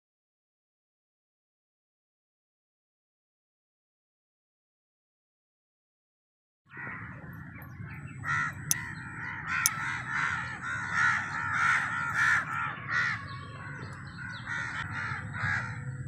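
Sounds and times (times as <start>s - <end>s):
crows cawing: 8.2s - 16.0s.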